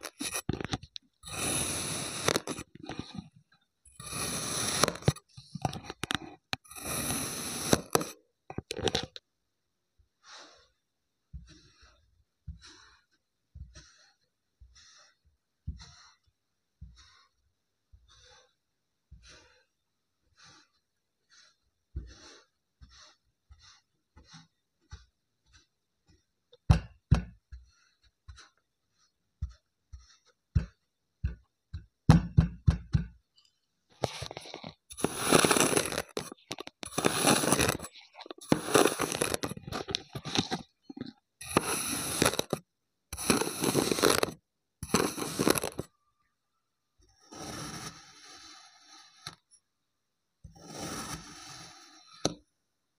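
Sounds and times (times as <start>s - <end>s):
knife crunching through sand: 34.9s - 40.6s, 41.4s - 42.6s, 43.2s - 45.9s.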